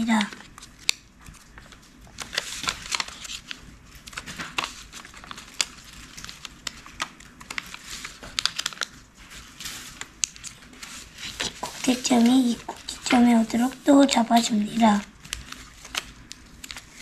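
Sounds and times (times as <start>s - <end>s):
paper rustling and crinkling: 0.0s - 17.0s.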